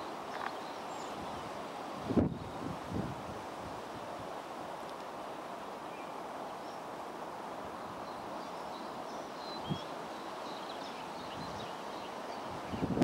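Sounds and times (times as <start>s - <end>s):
small birds chirping: 0.0s - 1.6s, 7.7s - 13.0s.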